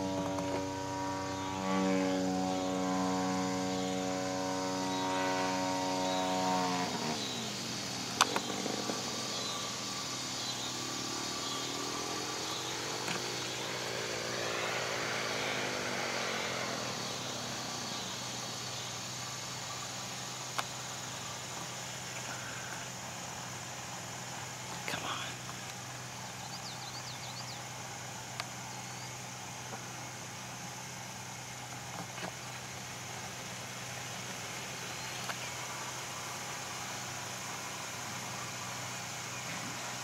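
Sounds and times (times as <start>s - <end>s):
model airplane motor droning: 0.0s - 23.2s.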